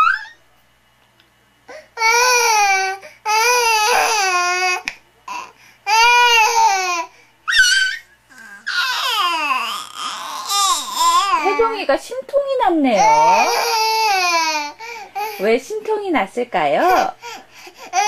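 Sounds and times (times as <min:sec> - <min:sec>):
baby wailing cries: 0:01.7 - 0:11.9, 0:12.8 - 0:15.5, 0:16.8 - 0:18.0.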